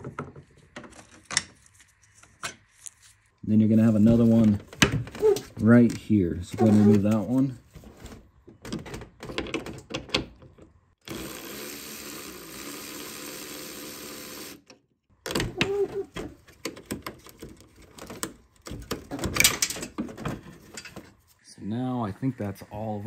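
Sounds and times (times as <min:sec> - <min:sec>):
power tool motor whirring: 0:11.0 - 0:14.6
clicks and knocks of metal parts: 0:16.4 - 0:21.2.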